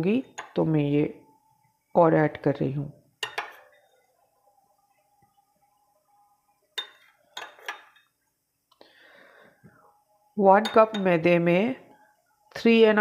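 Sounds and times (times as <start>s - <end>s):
spoon clinking glass bowl: 0.3s - 0.6s, 3.2s - 4.0s, 6.8s - 8.1s, 10.6s - 11.2s.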